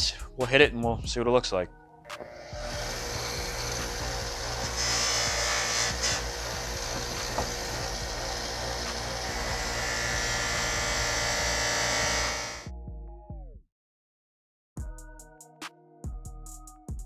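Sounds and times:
buffing wheel hissing: 2.2s - 12.6s
bench buffer motor humming: 2.2s - 12.7s
metal rubbing against buffing wheel: 2.3s - 12.6s.

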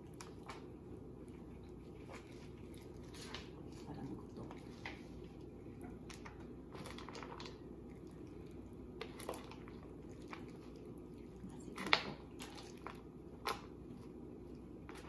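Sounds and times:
wet squishing of stirred vegetables: 0.0s - 15.0s.

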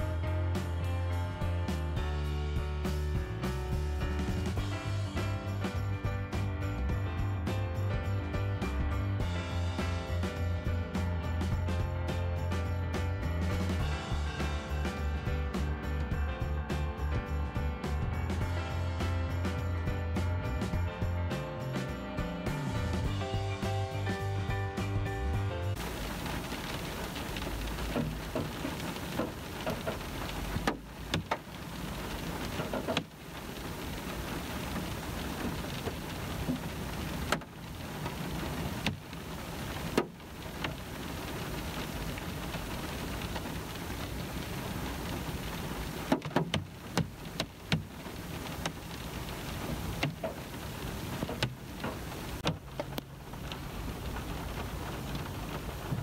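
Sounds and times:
rain on car roof: 1.9s - 56.0s
sharp raindrop taps: 25.7s - 56.0s.

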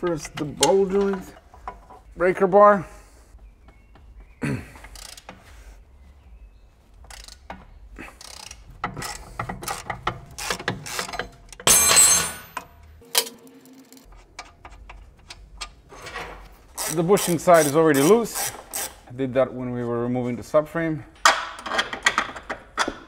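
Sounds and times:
wrench clicking and scraping: 4.8s - 5.5s, 7.0s - 12.6s, 16.7s - 19.1s
ratcheting rasp: 8.1s - 11.4s, 16.8s - 19.1s.

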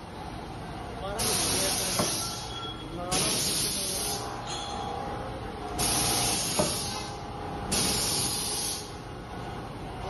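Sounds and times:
steady machine hum: 0.0s - 10.0s
bursts of air hiss: 1.2s - 2.5s, 3.1s - 4.3s, 5.8s - 9.0s.

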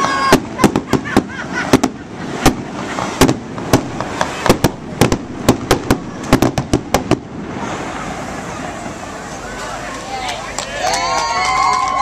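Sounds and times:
fireworks bangs: 0.0s - 9.6s.

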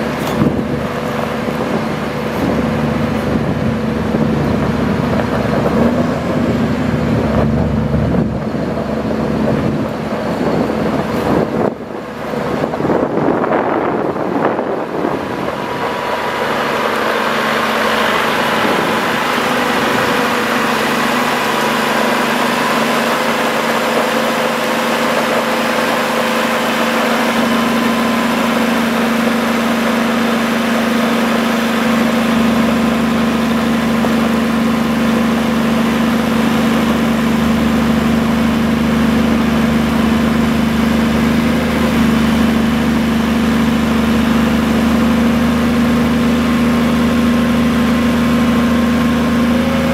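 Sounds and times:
diesel engine idling: 0.0s - 49.9s.

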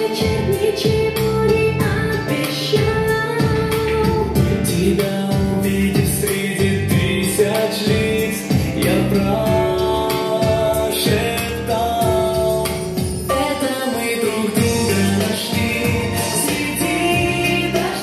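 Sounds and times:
backing track with steady beat: 0.0s - 18.0s
man singing: 4.4s - 18.0s.

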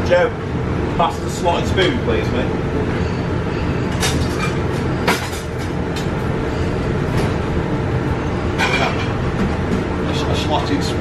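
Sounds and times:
extraction fan humming: 0.0s - 11.0s.

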